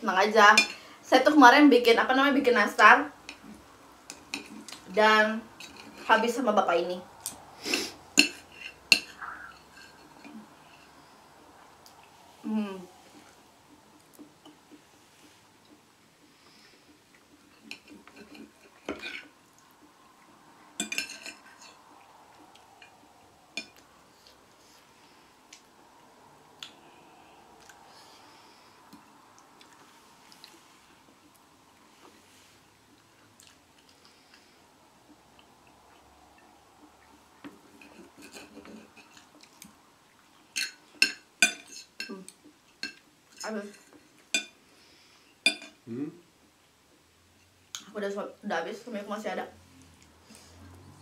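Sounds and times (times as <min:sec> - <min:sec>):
cutlery clatter: 0:20.8 - 0:21.7
cutlery clinking on a plate: 0:20.8 - 0:21.7, 0:40.6 - 0:42.1, 0:45.4 - 0:45.8.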